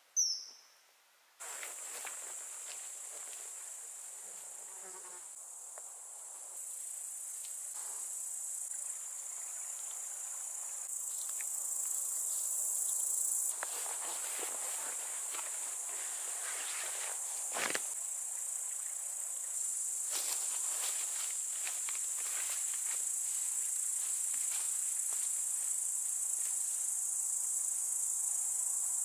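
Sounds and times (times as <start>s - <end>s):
footsteps through grass: 1.4s - 4.6s, 13.5s - 18.0s, 20.0s - 26.9s
crickets chirring: 1.4s - 29.0s.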